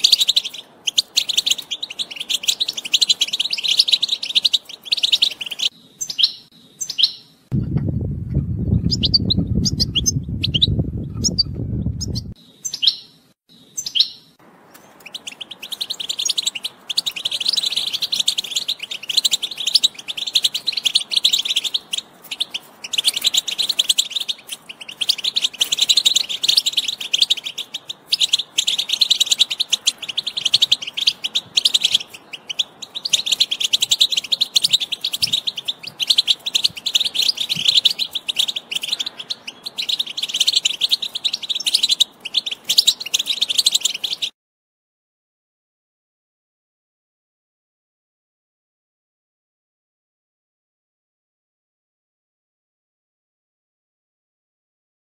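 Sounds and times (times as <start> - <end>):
goldfinch twittering song: 0.0 - 7.4, 8.0 - 44.4
low rumbling noise: 7.5 - 12.4.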